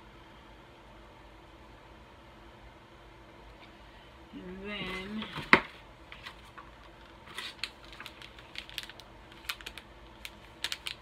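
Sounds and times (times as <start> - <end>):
wrappers and cardboard crinkling: 4.8 - 11.0.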